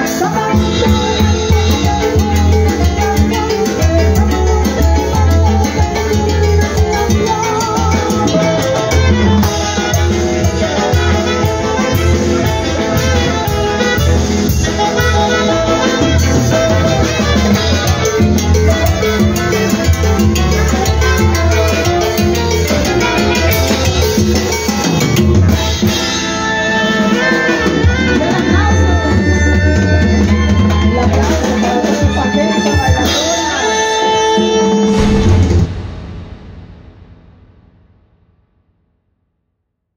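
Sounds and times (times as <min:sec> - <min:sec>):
electric bass: 0:00.0 - 0:25.9, 0:34.8 - 0:37.8
drum kit: 0:00.0 - 0:28.4, 0:34.5 - 0:38.3
saxophones: 0:00.0 - 0:30.6
live dance band playing: 0:00.0 - 0:37.6
heavy bass line: 0:34.8 - 0:38.4.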